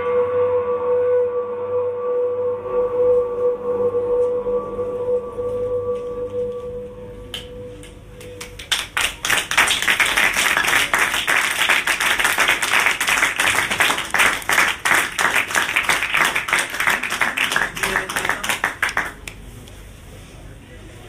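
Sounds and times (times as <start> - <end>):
audience applauding: 8.2 - 19.4.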